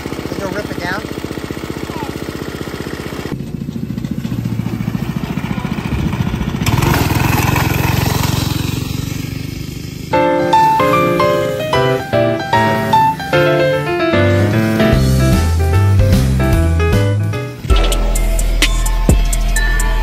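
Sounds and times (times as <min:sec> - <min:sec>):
go-kart engine: 0:00.0 - 0:16.6.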